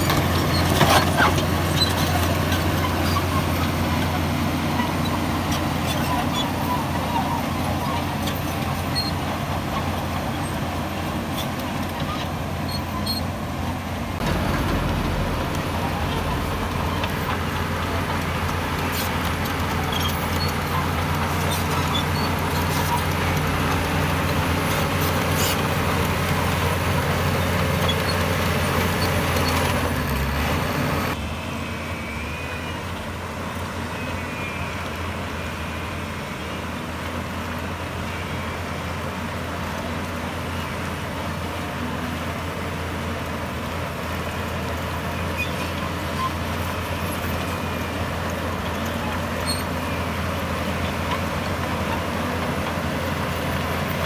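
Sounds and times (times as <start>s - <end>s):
diesel machinery engines running: 0.0s - 54.0s.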